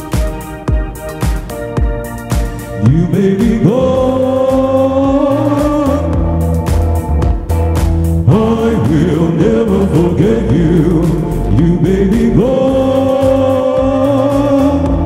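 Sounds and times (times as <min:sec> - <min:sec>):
band playing a steady beat: 0:00.0 - 0:15.0
person singing: 0:02.6 - 0:06.5, 0:08.2 - 0:15.0.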